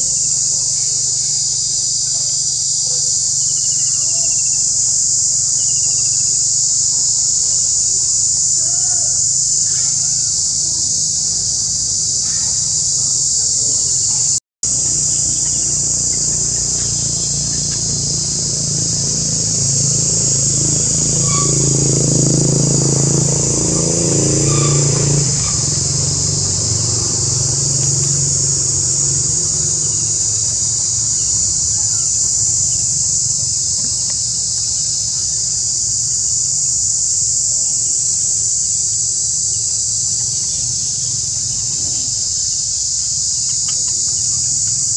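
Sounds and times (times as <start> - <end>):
high-pitched insect chorus: 0.0 - 44.9
vehicle engine rumble: 14.6 - 34.0.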